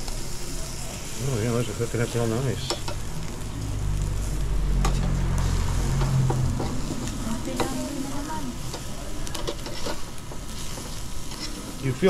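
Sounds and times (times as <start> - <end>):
meat sizzling on a grill: 0.0 - 12.0
low hum: 2.9 - 8.8.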